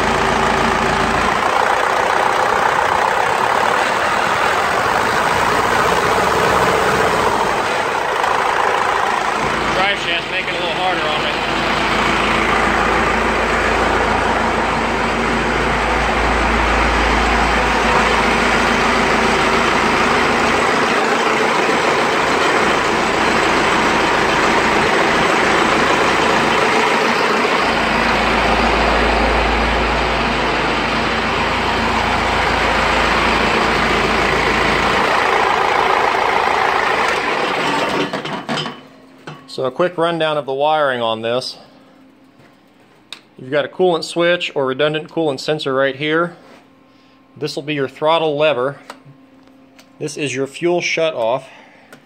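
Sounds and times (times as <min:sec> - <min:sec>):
diesel engine running: 0:00.0 - 0:43.1.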